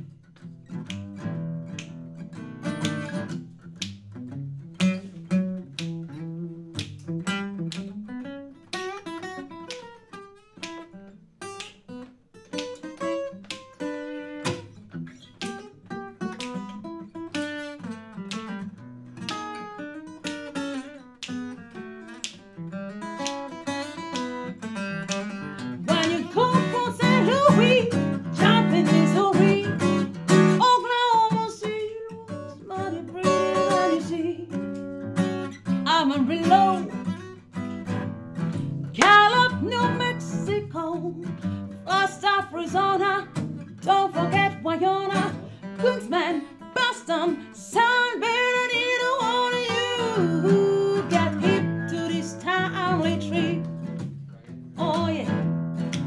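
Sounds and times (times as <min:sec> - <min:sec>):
acoustic guitar: 0:00.0 - 0:56.0
woman singing: 0:25.9 - 0:34.7, 0:35.8 - 0:37.0, 0:39.0 - 0:53.7, 0:54.8 - 0:55.4.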